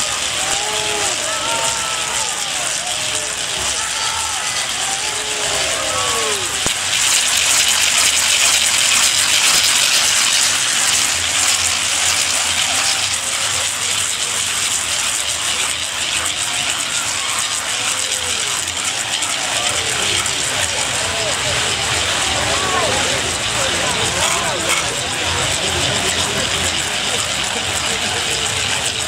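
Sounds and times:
people calling out: 0.0s - 6.7s, 16.4s - 28.7s.

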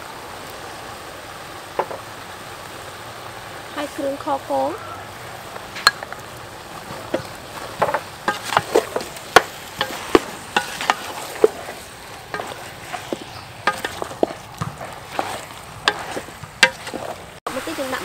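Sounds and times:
light steady hiss: 0.0s - 18.0s
wooden spatula clacking on metal pot: 6.9s - 17.4s.

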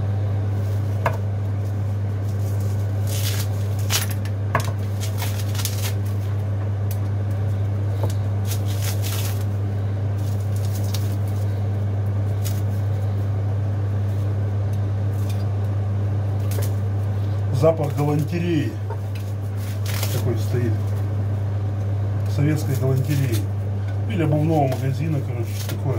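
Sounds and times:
steady low hum: 0.0s - 25.9s
packaging crinkling: 2.2s - 6.4s, 8.1s - 9.5s, 10.2s - 11.5s, 19.2s - 21.0s.

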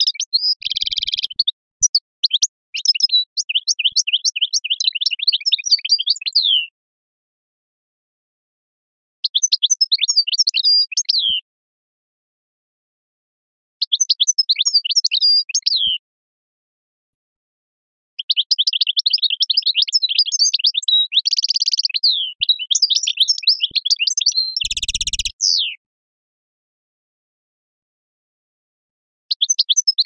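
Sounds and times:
buzzy bird trill: 0.0s - 6.6s, 18.3s - 25.8s
songbird twittering: 0.0s - 6.7s, 9.2s - 11.4s, 13.8s - 16.0s, 18.2s - 25.8s, 29.3s - 30.0s.

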